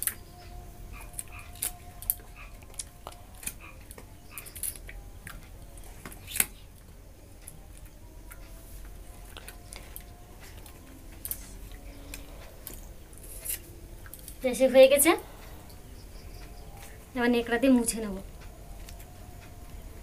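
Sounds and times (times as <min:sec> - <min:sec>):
blade clicking and scraping fruit: 0:09.2 - 0:14.4.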